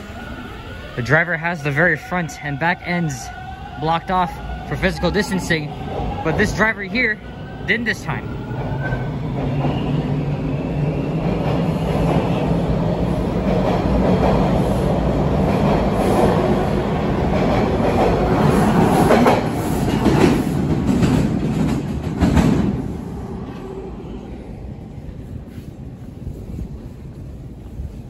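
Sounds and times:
train wheels clattering on rails: 13.1s - 23.0s.

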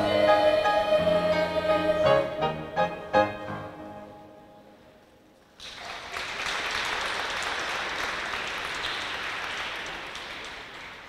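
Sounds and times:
audience applauding: 5.6s - 11.0s.

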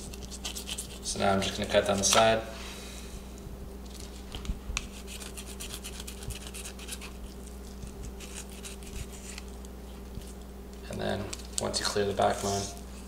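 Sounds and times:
knife scraping through fish scales: 0.0s - 1.1s, 4.8s - 7.2s, 7.8s - 9.5s
steady low hum: 0.0s - 13.0s.

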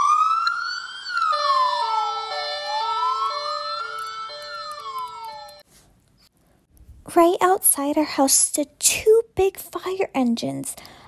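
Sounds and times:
wailing siren: 0.0s - 5.6s
two-tone hi-lo siren: 0.0s - 5.7s.

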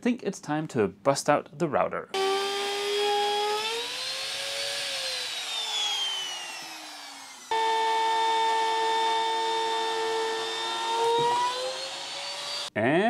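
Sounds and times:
trim router whining: 2.2s - 12.7s.

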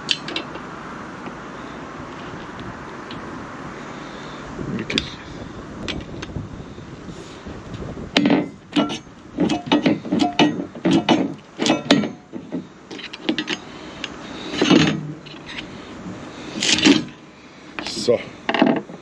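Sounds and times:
hand tool clicking on metal bolt: 8.2s - 15.6s.

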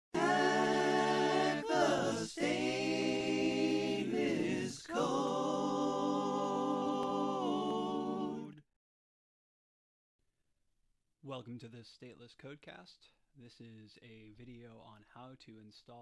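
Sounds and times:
voices singing a cappella: 0.0s - 8.7s.

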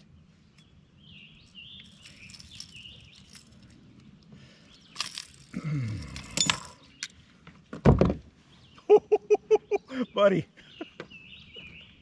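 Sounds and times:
bird chirping: 0.0s - 5.2s, 6.2s - 7.4s, 8.4s - 12.0s
clicks and knocks of handled gear: 1.8s - 4.2s.

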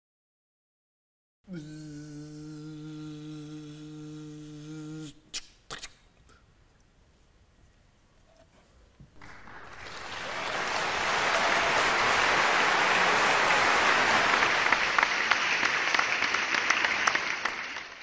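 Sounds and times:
crowd applause: 9.2s - 18.0s
single claps: 9.2s - 18.0s.

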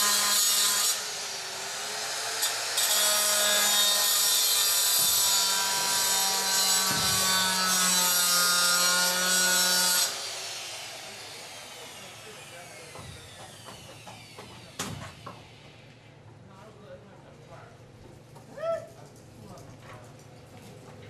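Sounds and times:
circular saw cutting: 0.0s - 15.8s.

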